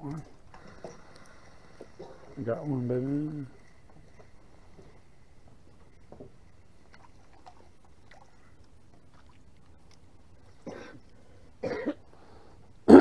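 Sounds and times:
faint clicks: 0:00.0 - 0:02.3
man clearing his throat: 0:11.6 - 0:12.0.

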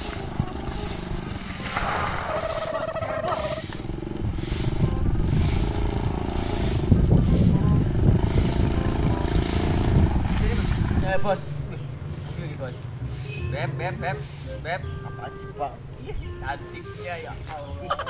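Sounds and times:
small motorcycle engine: 0:00.0 - 0:01.6, 0:02.5 - 0:13.9
broom sweeping dirt: 0:00.0 - 0:14.9, 0:16.7 - 0:17.8.

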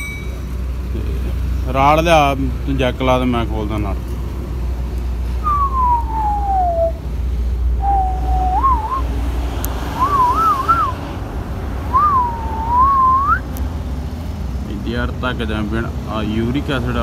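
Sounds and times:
person whistling a tune: 0:05.4 - 0:07.0, 0:07.8 - 0:09.1, 0:10.0 - 0:11.0, 0:11.9 - 0:13.4.

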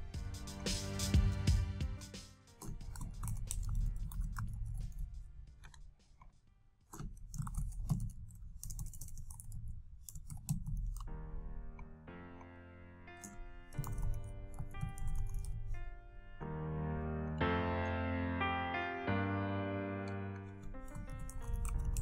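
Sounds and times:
music with held notes: 0:00.0 - 0:04.2, 0:11.1 - 0:22.0
typing on a computer keyboard: 0:07.0 - 0:11.2, 0:13.2 - 0:15.9, 0:20.4 - 0:22.0.

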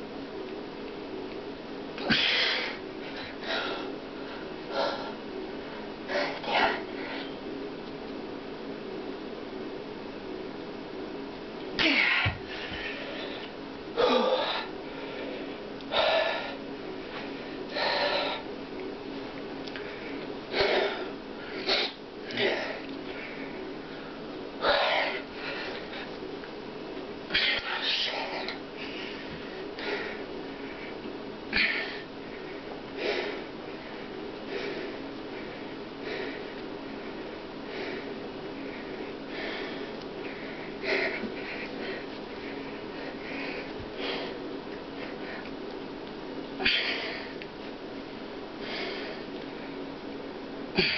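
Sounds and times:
steady low hum: 0:00.0 - 0:50.9
man breathing hard: 0:02.0 - 0:07.4, 0:11.8 - 0:18.5, 0:19.7 - 0:26.2, 0:27.3 - 0:45.5, 0:46.6 - 0:47.4, 0:48.6 - 0:49.8.

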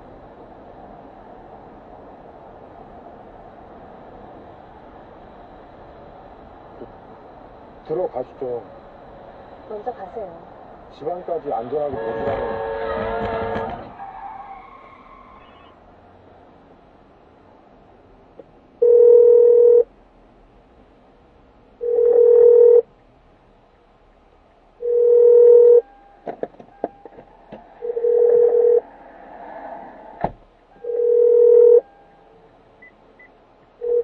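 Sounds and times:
telephone ringback tone: 0:18.8 - 0:19.9, 0:21.8 - 0:22.8, 0:24.8 - 0:25.9, 0:27.8 - 0:28.8, 0:30.8 - 0:32.2.

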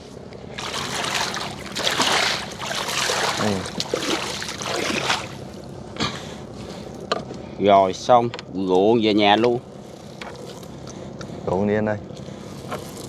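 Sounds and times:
net hauled over boat side: 0:00.0 - 0:07.3
water splashing and streaming: 0:00.5 - 0:05.6.

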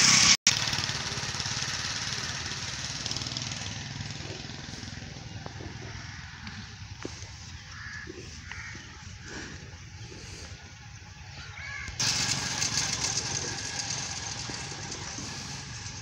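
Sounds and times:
low engine hum: 0:00.0 - 0:16.0
short bird calls: 0:04.2 - 0:12.0.

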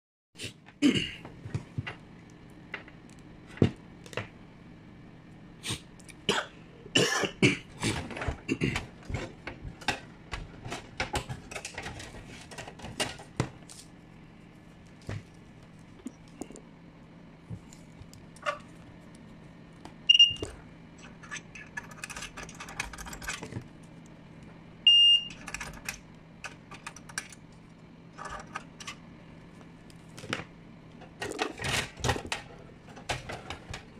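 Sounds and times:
steady low hum: 0:00.4 - 0:33.9
short electronic beeps: 0:20.1 - 0:20.4.

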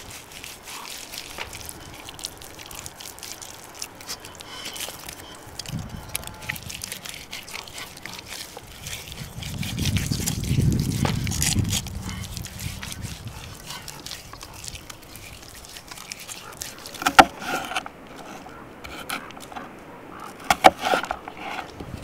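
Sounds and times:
hands kneading wet meat: 0:00.0 - 0:17.4.

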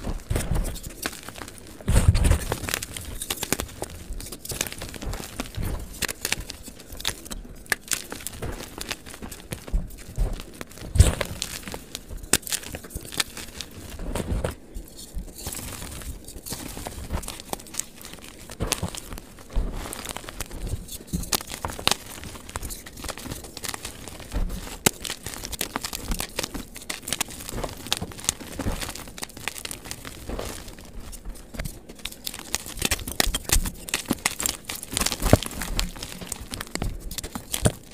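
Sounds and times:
chalk crunching and crackling: 0:00.0 - 0:37.9.

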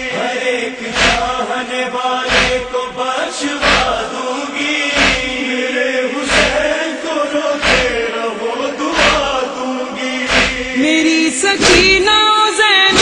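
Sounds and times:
mourners chanting in unison: 0:00.0 - 0:12.0
hands slapping chests: 0:01.0 - 0:01.4, 0:02.3 - 0:02.6, 0:03.6 - 0:04.0, 0:05.0 - 0:05.3, 0:06.3 - 0:06.6, 0:07.6 - 0:08.0, 0:09.0 - 0:09.3, 0:10.3 - 0:10.7.

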